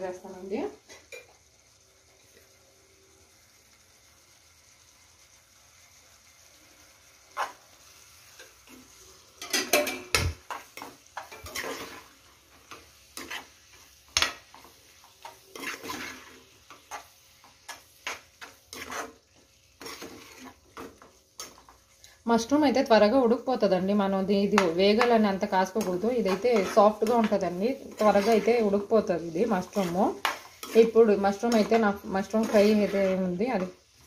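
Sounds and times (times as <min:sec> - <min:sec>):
metal spatula scraping pan: 0:07.3 - 0:07.6, 0:08.3 - 0:21.8, 0:24.5 - 0:33.8.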